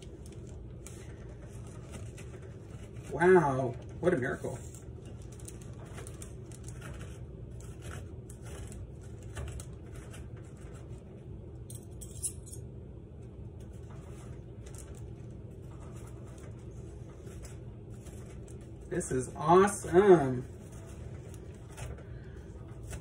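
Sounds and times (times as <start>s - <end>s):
steady low hum: 0.0s - 23.0s
metal forks scraping and clinking: 11.7s - 12.6s.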